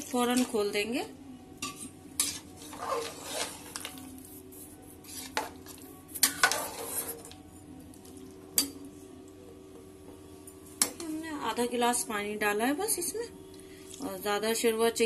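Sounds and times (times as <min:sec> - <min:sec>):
ladle scraping a pot: 0:01.6 - 0:04.0, 0:05.0 - 0:07.3.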